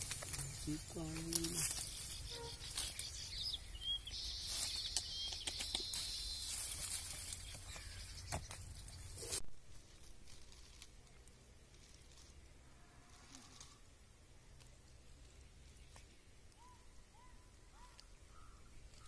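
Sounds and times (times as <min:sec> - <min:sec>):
leaves and stems rustling: 0:00.0 - 0:13.9.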